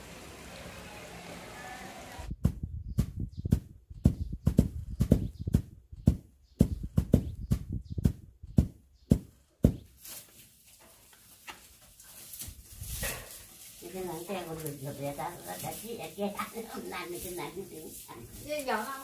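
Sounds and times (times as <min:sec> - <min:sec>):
wooden mallet pounding rice: 0:02.4 - 0:09.9.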